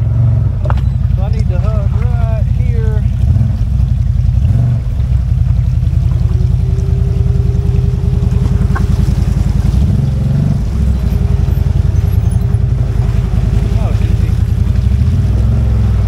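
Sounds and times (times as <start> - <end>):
engine running at low speed: 0.0 - 16.0.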